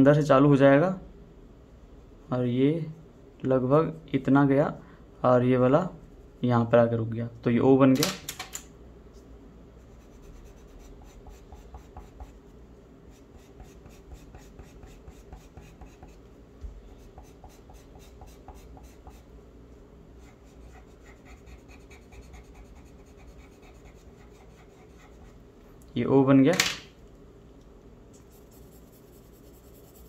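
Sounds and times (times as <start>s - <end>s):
pencil scratching on paper: 9.8s - 16.3s, 17.0s - 19.3s, 20.2s - 25.4s, 28.2s - 30.0s.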